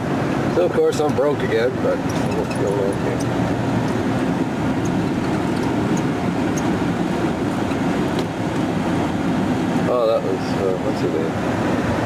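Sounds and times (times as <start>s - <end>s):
truck engine and road noise: 0.0s - 12.0s.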